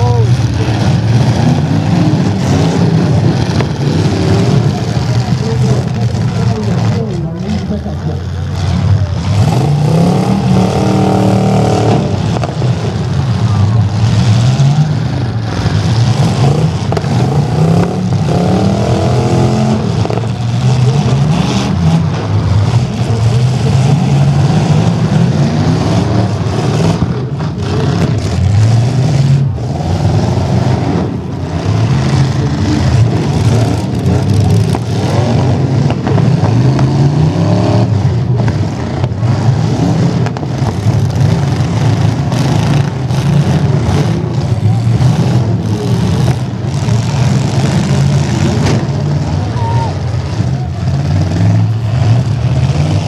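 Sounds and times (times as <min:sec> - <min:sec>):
truck engines revving hard: 0:00.0 - 0:53.0.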